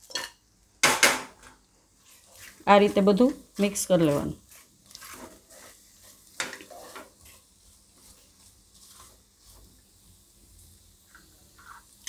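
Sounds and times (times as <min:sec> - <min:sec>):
spatula stirring food in a pot: 0:00.0 - 0:12.0.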